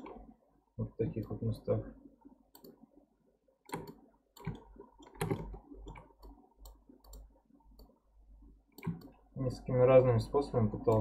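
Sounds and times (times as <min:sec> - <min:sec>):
computer mouse clicking: 0:02.5 - 0:02.8, 0:03.7 - 0:08.0, 0:08.8 - 0:09.2.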